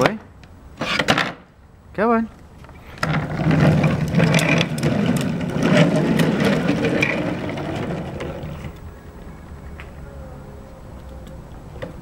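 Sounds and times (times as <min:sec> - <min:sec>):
plastic wheels rolling over asphalt: 0:02.6 - 0:09.8
rumbling rattle with clicks: 0:02.9 - 0:09.8.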